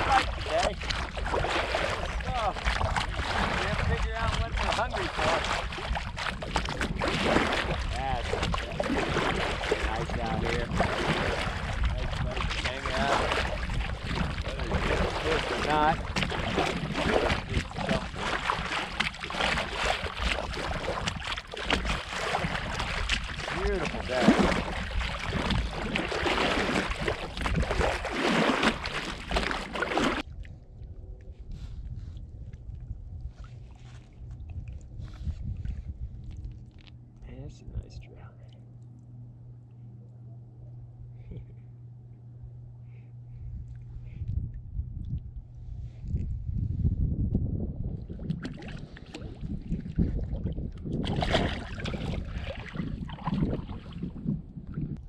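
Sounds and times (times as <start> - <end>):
water rushing and splashing: 0.0 - 30.2, 51.1 - 53.7
wind rumbling on microphone: 0.0 - 38.5, 40.8 - 41.7, 42.4 - 55.0.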